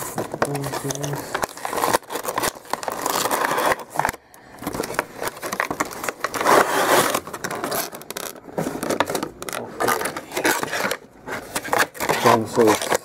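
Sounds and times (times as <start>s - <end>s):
plastic packaging crinkling: 0.0s - 13.0s
cardboard box scraping: 5.2s - 12.9s.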